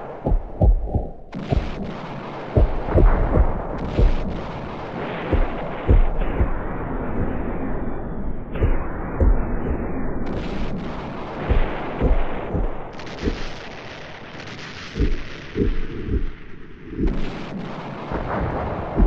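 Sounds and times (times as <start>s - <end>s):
low rumble: 0.0s - 13.7s
deep booming thuds: 0.2s - 7.5s, 8.6s - 13.7s, 15.0s - 17.4s.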